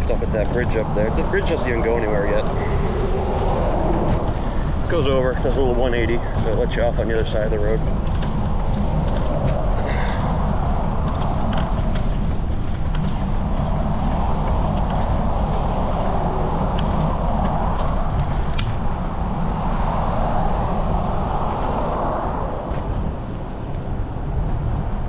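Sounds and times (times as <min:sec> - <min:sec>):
light clicks and rattles: 0:00.0 - 0:18.8
wind rushing over microphone: 0:00.0 - 0:25.0.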